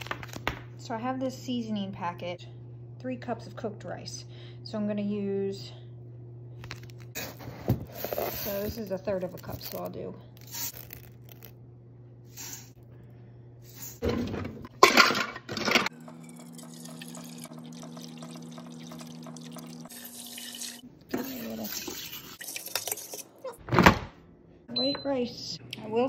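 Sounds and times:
water pouring into plastic cup: 0:16.3 - 0:20.8.

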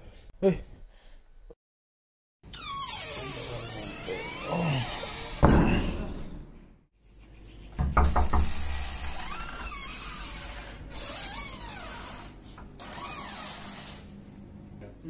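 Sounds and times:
door rattling and thudding: 0:05.2 - 0:06.3, 0:07.8 - 0:10.4.

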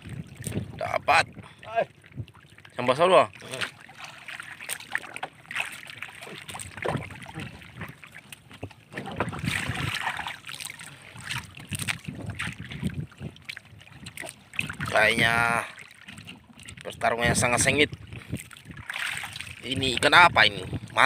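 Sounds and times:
wind on microphone: 0:00.0 - 0:02.4, 0:06.4 - 0:08.0, 0:08.6 - 0:10.4, 0:11.1 - 0:15.6, 0:16.7 - 0:21.0
knocks and rustles in boat: 0:00.0 - 0:21.0
water lapping against boat: 0:00.0 - 0:21.0.

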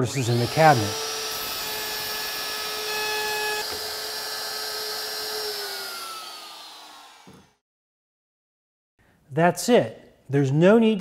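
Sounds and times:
motor winding down: 0:00.0 - 0:07.6
router motor whining: 0:00.0 - 0:07.6.

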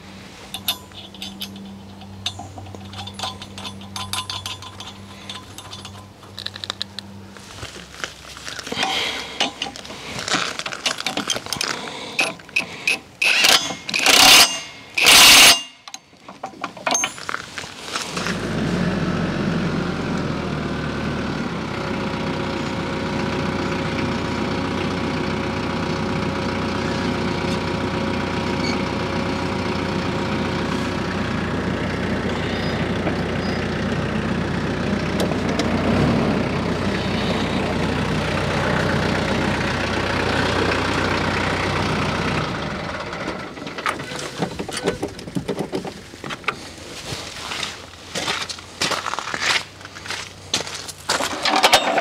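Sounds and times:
tractor diesel engine running: 0:00.0 - 0:52.0
light clicks and scuffs: 0:06.4 - 0:11.7.

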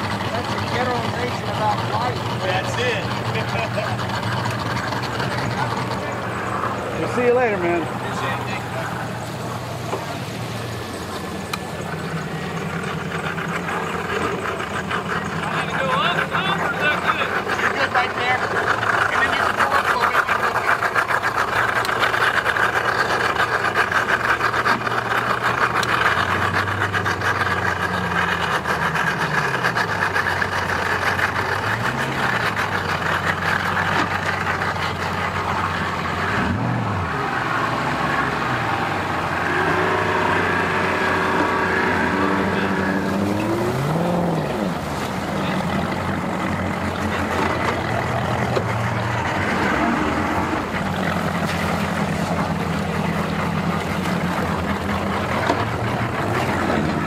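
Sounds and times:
outboard motors droning: 0:00.0 - 0:57.0.

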